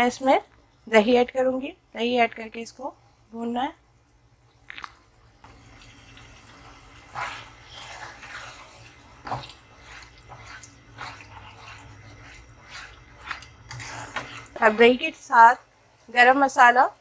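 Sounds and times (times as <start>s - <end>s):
spatula stirring in frying pan: 4.6s - 16.8s.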